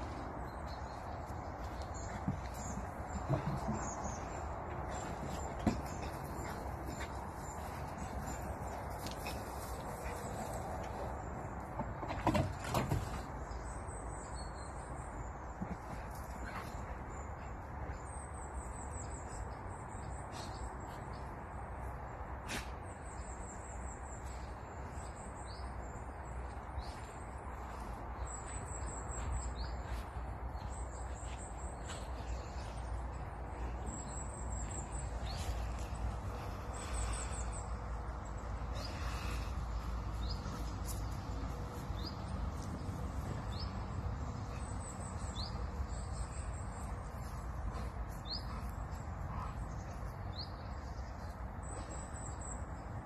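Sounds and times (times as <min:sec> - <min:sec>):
small birds singing: 0:00.0 - 0:53.0.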